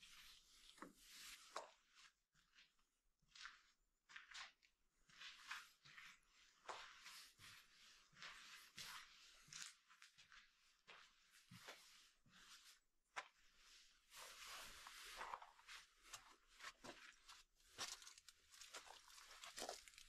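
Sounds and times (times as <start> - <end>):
small clicks and cracks: 17.8 - 20.0.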